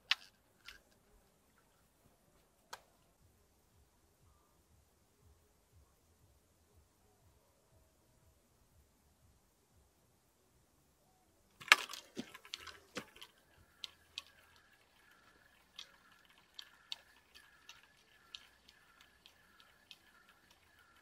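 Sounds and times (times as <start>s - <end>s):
fishing reel squeaking and clicking: 11.6s - 21.0s.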